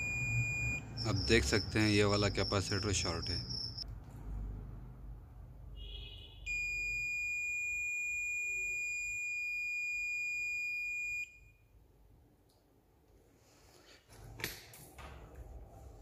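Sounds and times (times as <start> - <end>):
multimeter continuity beep: 0.0 - 3.8, 6.5 - 11.7.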